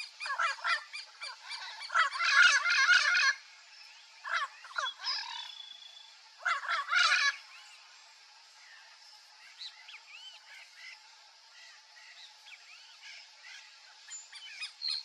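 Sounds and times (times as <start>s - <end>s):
parrot chattering calls: 6.4s - 7.4s.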